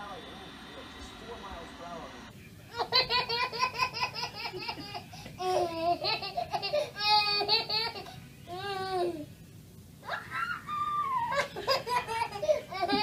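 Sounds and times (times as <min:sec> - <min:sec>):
baby laughing: 0:02.7 - 0:09.2, 0:11.2 - 0:13.0.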